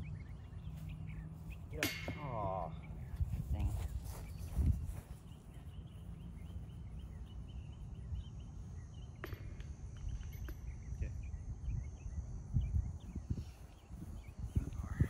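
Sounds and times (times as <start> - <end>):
small birds chirping: 0.0 - 15.0
wind rumble on microphone: 2.8 - 8.4, 10.0 - 15.0.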